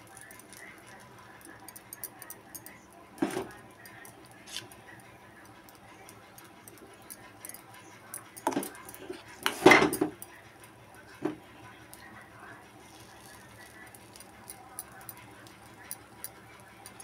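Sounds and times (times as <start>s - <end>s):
spoon scraping a metal pan: 4.4s - 4.8s.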